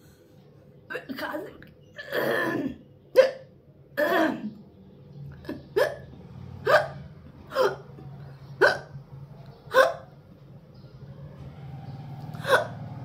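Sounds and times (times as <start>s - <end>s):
woman hiccuping: 2.0s - 4.5s, 5.5s - 6.0s, 6.7s - 7.8s, 8.6s - 8.9s, 9.7s - 10.1s.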